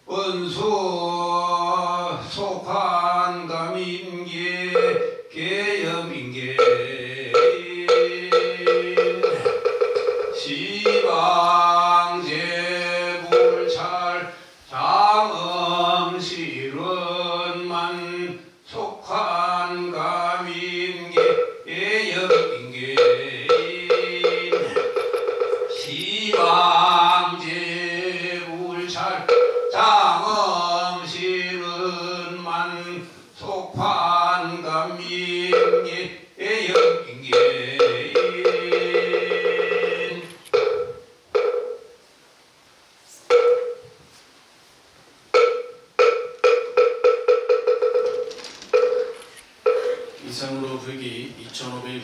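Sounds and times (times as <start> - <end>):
wooden temple block knocks: 6.6 - 11.1, 13.2 - 13.8, 21.2 - 21.6, 22.3 - 26.6, 29.3 - 29.8, 40.6 - 41.9, 43.3 - 43.8, 45.4 - 50.0.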